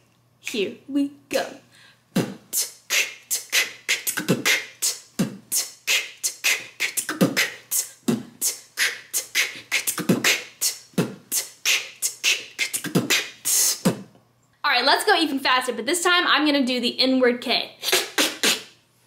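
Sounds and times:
woman beatboxing: 0:00.4 - 0:01.6, 0:02.2 - 0:14.1, 0:17.7 - 0:18.8.

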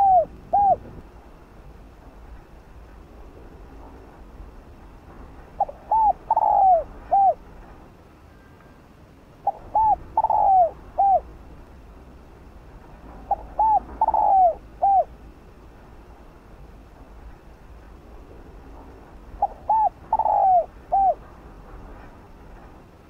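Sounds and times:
dove cooing: 0:00.0 - 0:00.9, 0:05.6 - 0:07.4, 0:09.4 - 0:11.3, 0:13.2 - 0:15.1, 0:19.4 - 0:21.2.

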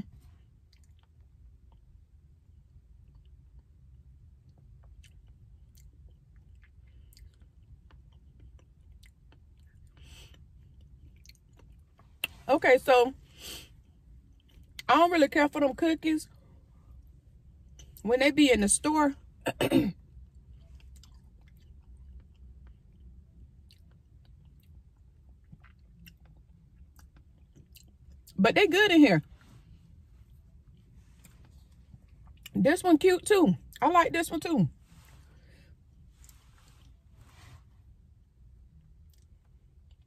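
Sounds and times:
low steady hum: 0:00.0 - 0:40.0
chewing and mouth clicks: 0:00.6 - 0:01.9, 0:04.4 - 0:12.4, 0:20.3 - 0:28.4, 0:39.0 - 0:40.0.

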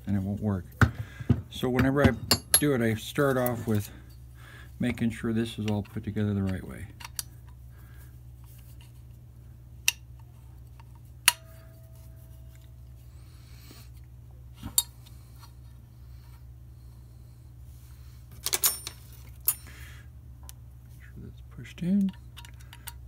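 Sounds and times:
steady low hum: 0:00.0 - 0:23.0
metal parts clicking and clinking: 0:02.2 - 0:04.2, 0:18.3 - 0:19.8, 0:22.0 - 0:23.0.

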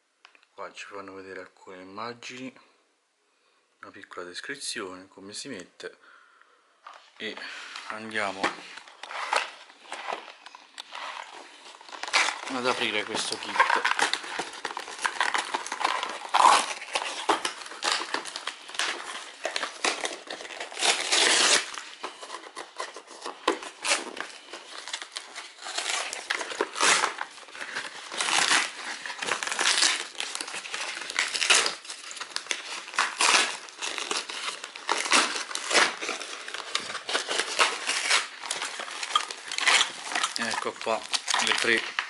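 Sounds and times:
cardboard crinkling: 0:07.2 - 0:42.0
cardboard box tearing: 0:08.2 - 0:41.8.

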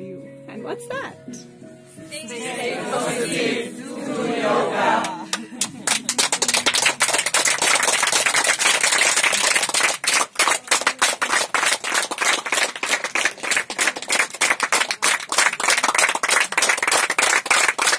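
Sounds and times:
people clapping: 0:04.7 - 0:17.9.

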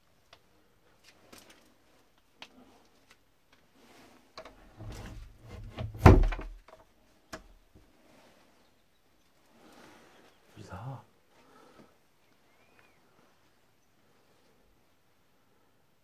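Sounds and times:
loud sharp thump: 0:06.0 - 0:06.5.

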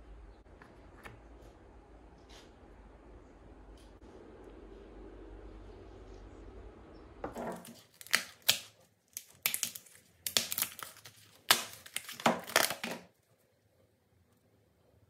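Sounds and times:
card crackling and rustling: 0:07.4 - 0:13.1.

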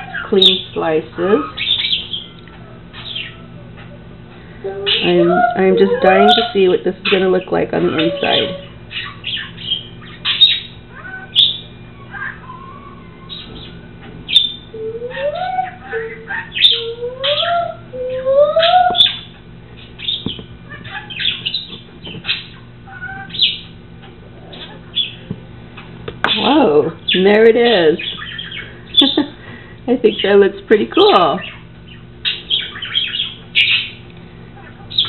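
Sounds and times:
steady low hum: 0:00.0 - 0:35.0
bird chirping: 0:01.4 - 0:04.0, 0:04.6 - 0:23.8, 0:24.5 - 0:29.3, 0:31.0 - 0:34.1.

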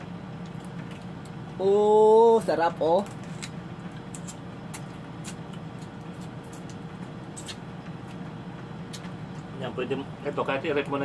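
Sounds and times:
steady low hum: 0:00.0 - 0:11.0
people eating crabs by hand: 0:03.0 - 0:08.3.

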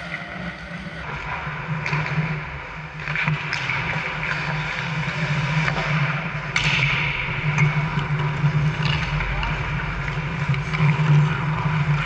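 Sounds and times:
steady low hum: 0:00.0 - 0:03.3.

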